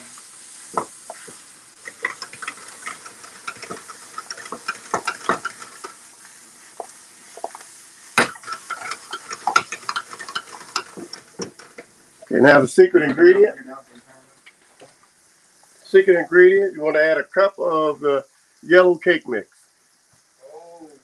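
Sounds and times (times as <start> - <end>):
filling sizzling in skillet: 0.0 - 21.0
utensil scraping pan: 0.7 - 11.9.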